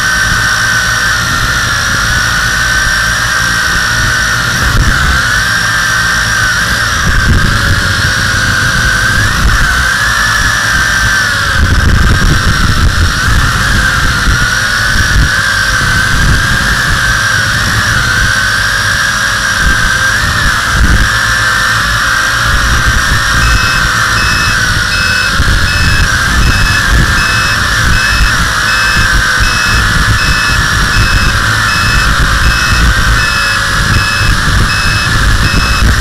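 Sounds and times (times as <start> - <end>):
quadcopter motors whining: 0.0 - 36.0
wind rumble on microphone: 0.0 - 36.0
faint high beeping: 22.5 - 36.0.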